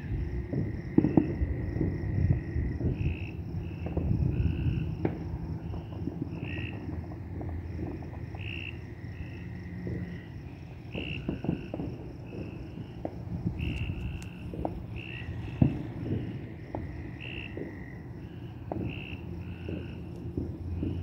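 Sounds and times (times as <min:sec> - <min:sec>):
insects and frogs chirping: 0:00.0 - 0:21.0.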